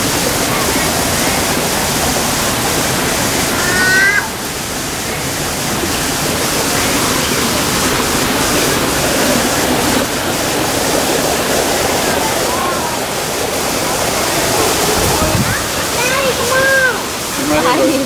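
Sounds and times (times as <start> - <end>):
water rushing: 0.0 - 18.0.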